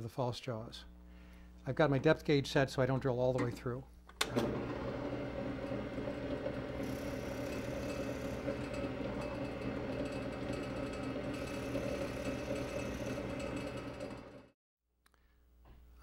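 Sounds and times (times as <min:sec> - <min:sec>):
electric drill boring into wood: 0:04.3 - 0:14.5.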